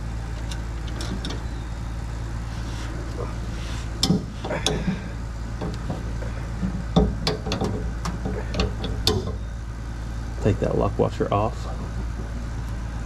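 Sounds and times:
steady low hum: 0.0s - 13.0s
metallic clicks of washers and nuts: 6.6s - 9.4s.

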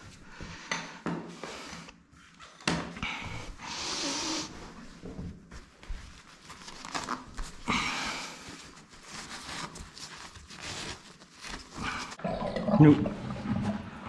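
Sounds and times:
cloth rag scrubbing: 3.7s - 12.2s
canvas sheet rustling: 4.2s - 12.2s.

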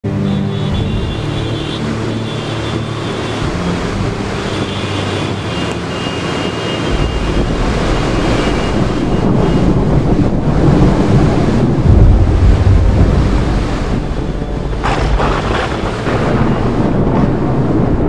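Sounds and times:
strong wind buffeting microphone: 6.2s - 18.0s.

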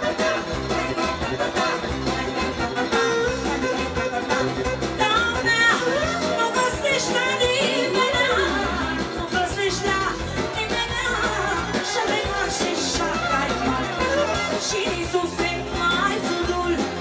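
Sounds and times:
clarinet: 0.0s - 9.0s, 11.3s - 15.2s
accordion: 0.0s - 17.0s
drums: 0.0s - 17.0s
woman singing: 0.0s - 17.0s.

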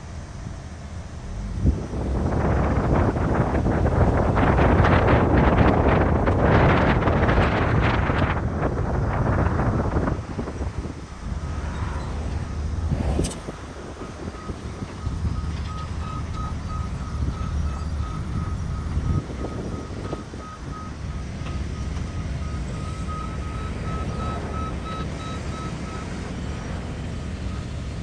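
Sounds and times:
low rumble: 10.3s - 14.4s
back-up alarm beeps: 14.4s - 26.1s.

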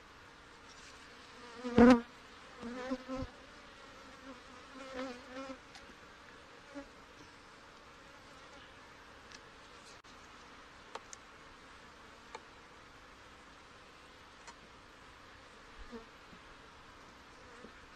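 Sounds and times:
honey bees buzzing: 1.2s - 7.0s.

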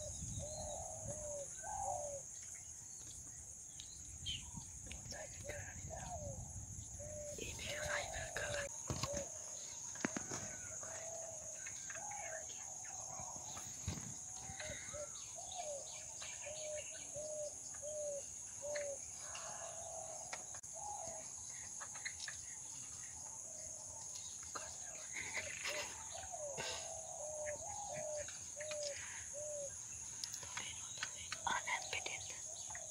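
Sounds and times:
high insect drone: 0.0s - 32.9s
bird hooting: 14.5s - 15.8s, 25.3s - 29.8s.

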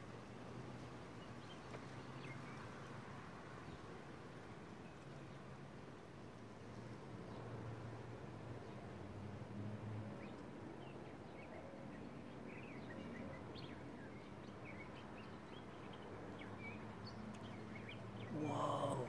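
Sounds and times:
small birds chirping: 10.2s - 19.0s.

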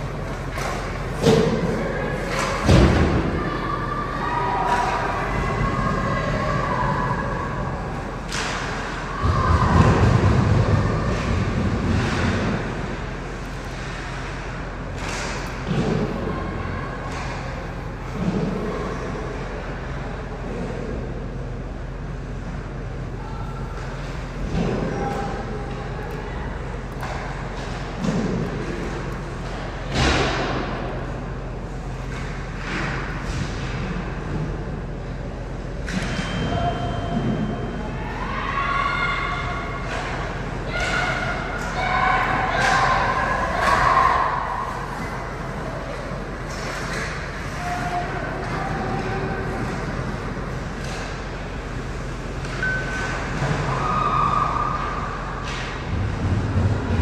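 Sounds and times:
steady background noise: 0.0s - 57.0s
steady rink hum: 0.0s - 57.0s.

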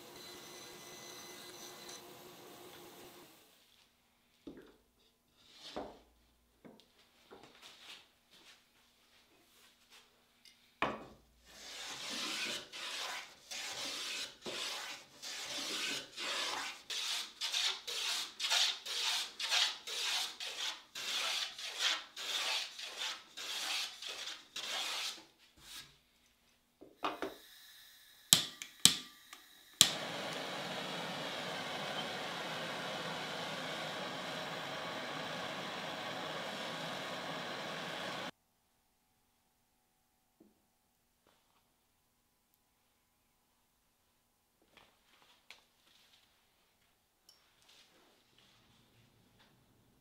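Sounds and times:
sanding wood by hand: 11.6s - 25.8s.

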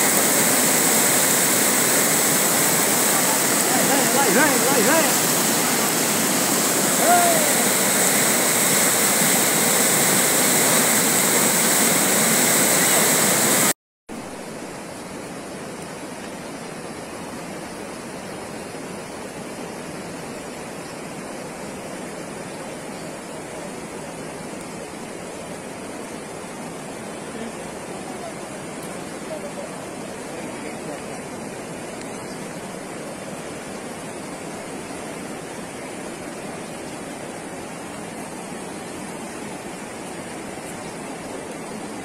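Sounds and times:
floodwater rushing in creek: 0.0s - 42.0s.

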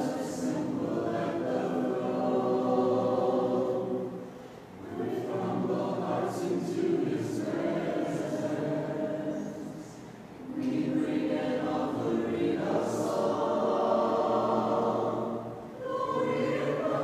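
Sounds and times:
congregation singing a cappella: 0.0s - 17.0s.

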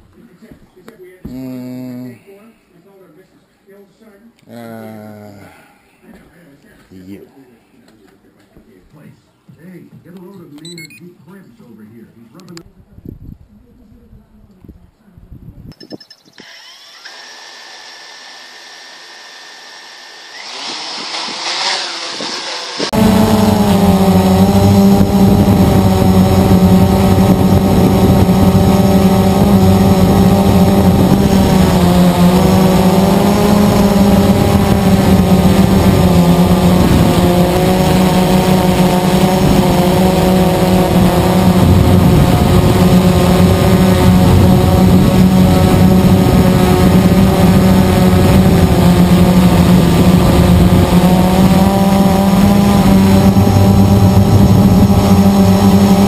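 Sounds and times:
quadcopter motors buzzing: 1.3s - 2.2s, 15.7s - 56.0s.

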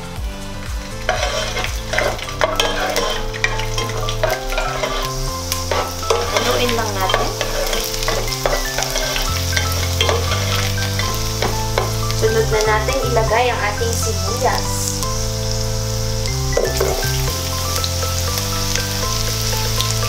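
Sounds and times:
garlic sizzling in oil: 0.0s - 20.0s
utensil scraping a pan: 1.0s - 12.6s, 16.5s - 17.5s.

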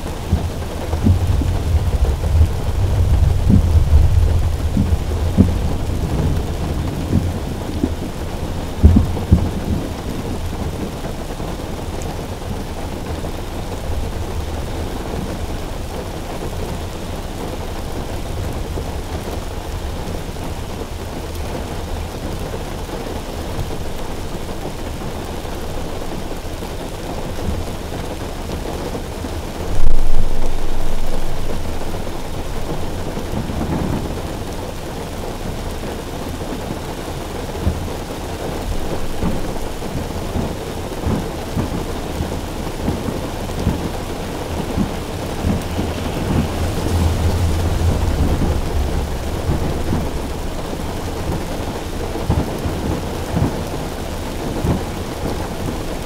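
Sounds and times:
rain drumming on a car roof: 0.0s - 56.0s
thunder rumbling: 0.0s - 56.0s
sudden loud boom: 29.7s - 34.0s, 43.5s - 52.5s.

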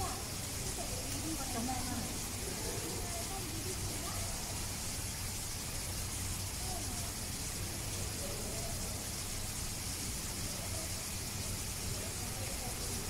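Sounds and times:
distant voices talking: 0.0s - 13.0s.

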